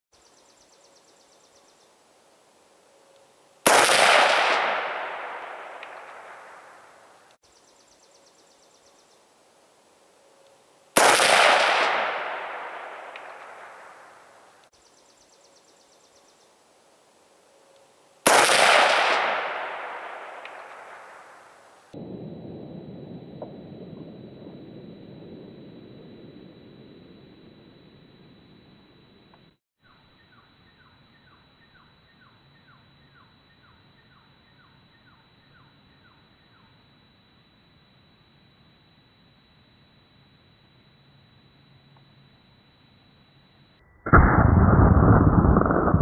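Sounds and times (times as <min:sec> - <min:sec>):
gunshots echoing: 0:03.7 - 0:06.8, 0:11.0 - 0:13.8, 0:18.3 - 0:21.2.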